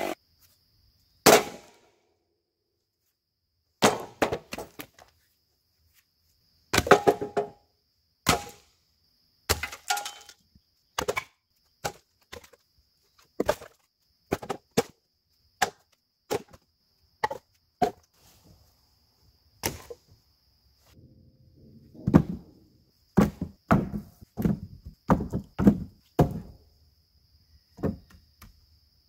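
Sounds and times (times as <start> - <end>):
wooden logs clunking onto pile: 3.8 - 5.1, 6.8 - 7.6, 9.5 - 12.6, 13.2 - 14.9, 21.6 - 26.6, 27.8 - 28.2.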